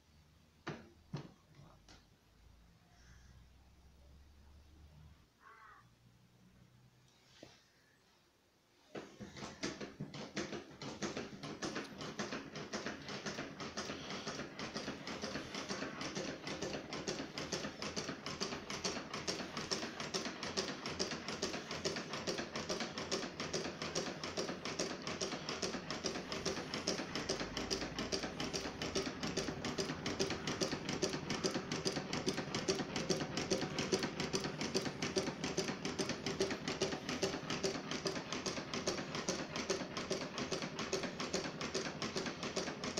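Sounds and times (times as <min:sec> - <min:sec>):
solenoid engine clacking: 0:09.4 - 0:42.9.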